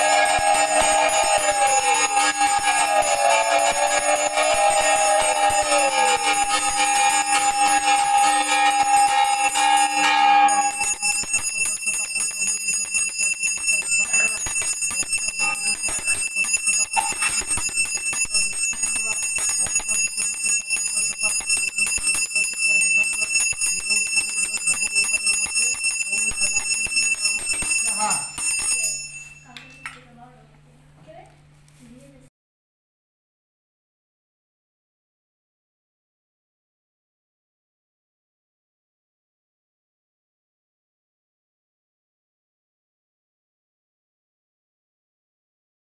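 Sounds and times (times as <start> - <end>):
hand bell rung rapidly: 0.0 - 30.0
loud steady held tone: 0.0 - 30.1.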